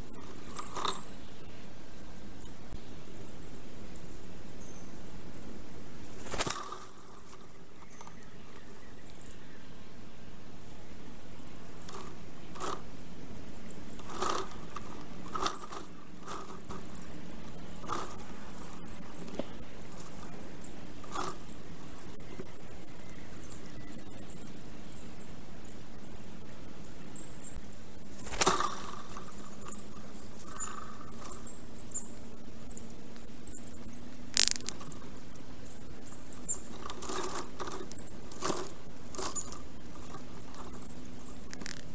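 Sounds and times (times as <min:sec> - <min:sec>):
sharp clicks and knocks: 0:34.3 - 0:35.0.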